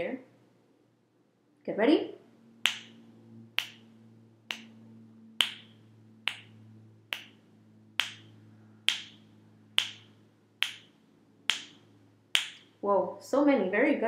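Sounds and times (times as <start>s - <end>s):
finger snaps: 2.6s - 3.0s, 3.6s - 3.9s, 4.5s - 4.8s, 5.4s - 6.5s, 7.1s - 7.4s, 8.0s - 8.3s, 8.9s - 9.2s, 9.8s - 11.8s.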